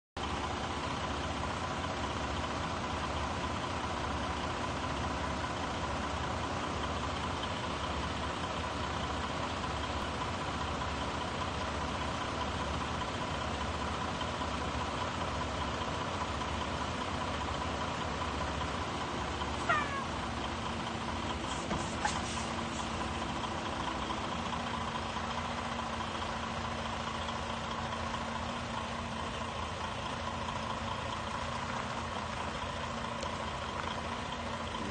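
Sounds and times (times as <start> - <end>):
diesel truck engine running: 0.2 - 34.9
short high squeal: 19.6 - 20.1, 21.4 - 23.0.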